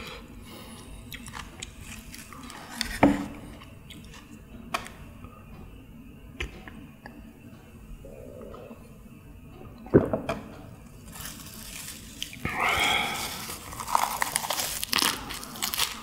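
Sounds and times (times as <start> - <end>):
salad leaves crinkling and rustling: 11.0 - 16.0
crisp bite crunch: 11.2 - 16.0.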